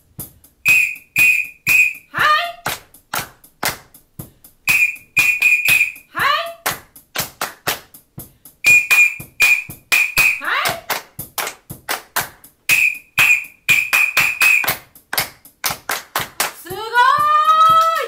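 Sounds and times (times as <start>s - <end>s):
rhythmic hand clapping: 0.1s - 18.0s
whistle blasts: 0.6s - 2.4s, 4.7s - 6.1s, 8.6s - 10.5s, 12.7s - 14.8s
woman calling out: 2.1s - 2.7s, 6.1s - 6.7s, 10.4s - 10.9s, 16.7s - 18.0s.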